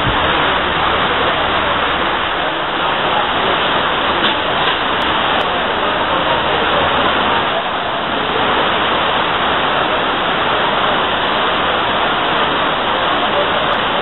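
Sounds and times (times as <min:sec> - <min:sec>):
heavy rain pouring: 0:00.0 - 0:14.0.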